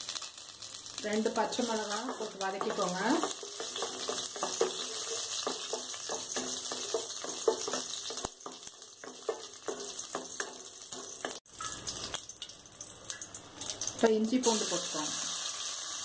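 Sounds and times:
oil sizzling: 0.0 - 16.0
wooden spatula scraping and stirring: 1.8 - 11.4.

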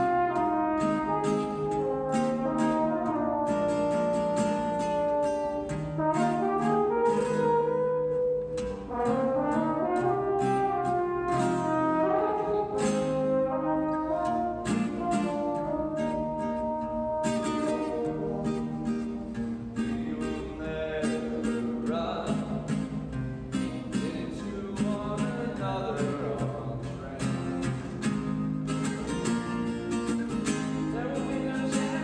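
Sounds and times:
french horn slow melody: 0.0 - 20.3
acoustic guitar strumming: 0.0 - 32.0.

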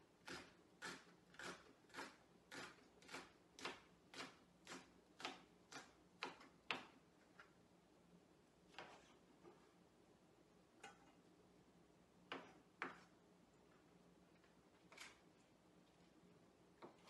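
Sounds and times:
knife chopping on wooden board: 0.2 - 6.9.

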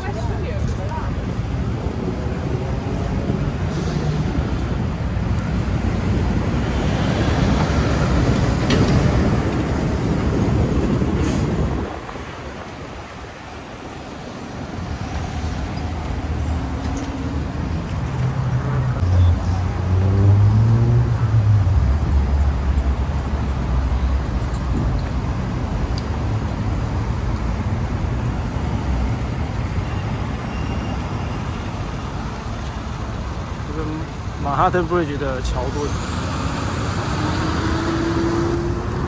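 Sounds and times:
traffic road noise hum: 0.0 - 39.0
vehicle passing close: 14.9 - 24.2, 35.6 - 39.0.

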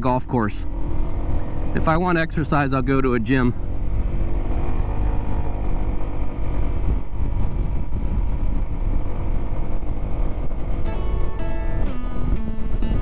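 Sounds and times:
motorcycle rumbling: 0.0 - 13.0
acoustic guitar music: 10.3 - 13.0.

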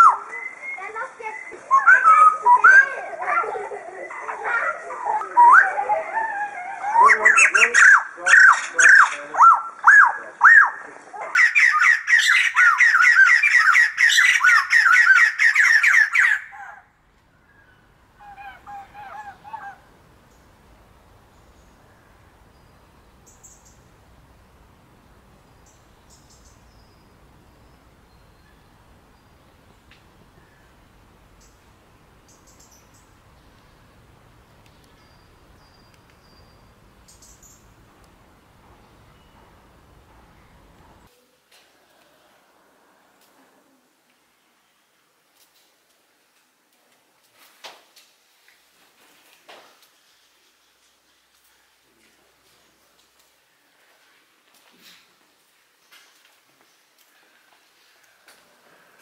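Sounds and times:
rapid jabbering bird calls: 7.0 - 16.8, 25.5 - 37.9
low steady hum: 16.8 - 41.2.

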